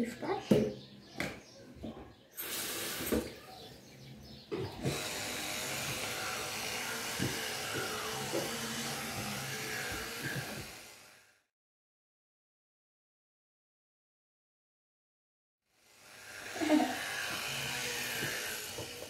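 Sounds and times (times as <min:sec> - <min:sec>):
electric toothbrush buzzing: 0:02.4 - 0:03.3, 0:04.6 - 0:11.5, 0:15.7 - 0:19.0
brief hiss: 0:02.4 - 0:03.5.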